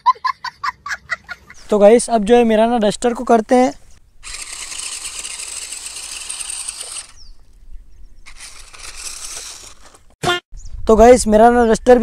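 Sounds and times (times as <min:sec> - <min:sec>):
rc car motor whining: 0:04.2 - 0:07.4, 0:08.3 - 0:10.2.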